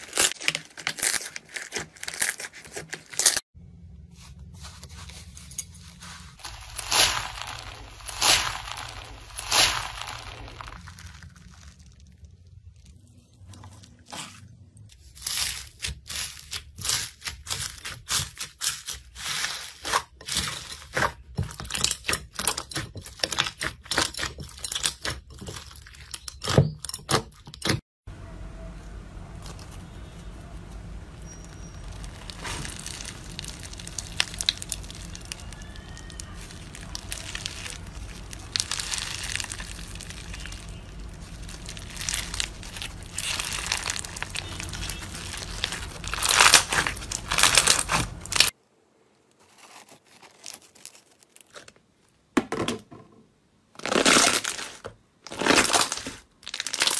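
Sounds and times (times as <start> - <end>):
slime squishing and crinkling: 0.0 - 3.5, 4.1 - 26.6, 29.3 - 48.6, 49.3 - 52.0, 53.8 - 56.9
slime crackling and popping: 6.4 - 13.2, 31.2 - 48.6, 53.8 - 56.9.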